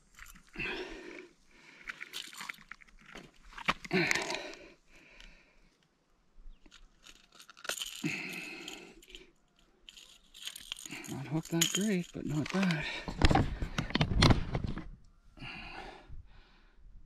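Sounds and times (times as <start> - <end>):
rustling and crunching of fish handling: 1.8 - 4.4.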